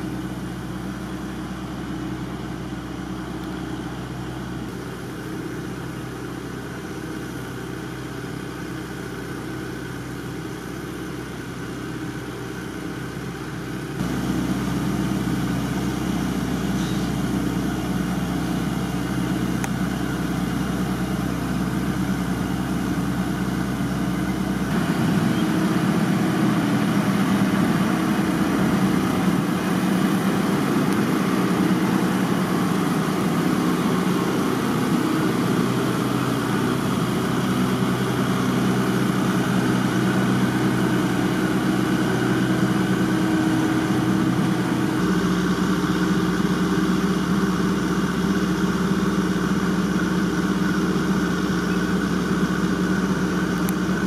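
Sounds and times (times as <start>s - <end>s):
engine running: 0.0s - 54.0s.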